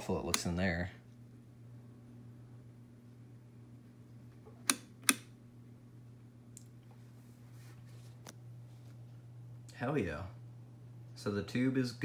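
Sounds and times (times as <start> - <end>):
low electrical hum: 0.0 - 12.0
switch clicks: 4.6 - 5.4.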